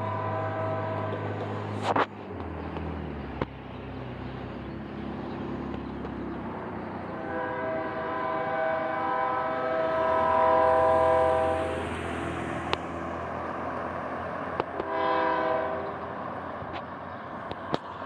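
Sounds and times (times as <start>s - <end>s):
locomotive air horn blast: 0.0s - 1.9s, 7.1s - 12.3s, 14.7s - 16.1s.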